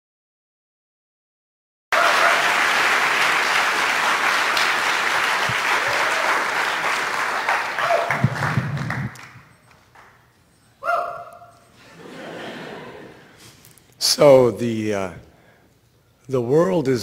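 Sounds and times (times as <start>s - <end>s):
audience applauding: 1.9s - 10.2s.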